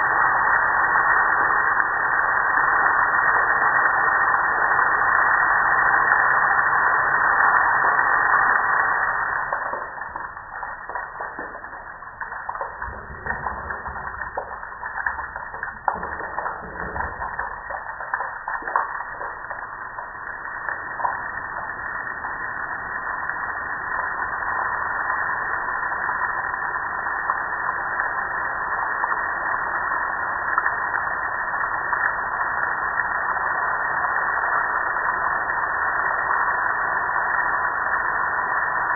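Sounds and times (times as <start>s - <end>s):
water drops ticking: 7.6s - 25.0s
water splashing on metal lid: 9.6s - 21.3s.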